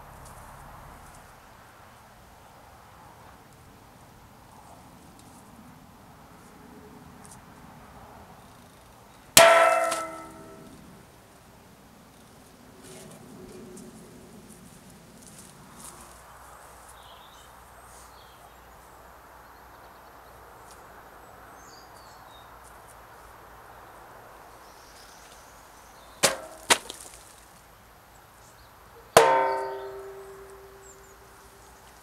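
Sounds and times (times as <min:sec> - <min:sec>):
axe striking wooden stump: 0:09.4 - 0:10.6, 0:26.2 - 0:27.0, 0:29.2 - 0:31.0
ringing steel axe head: 0:09.4 - 0:10.7, 0:29.2 - 0:31.1.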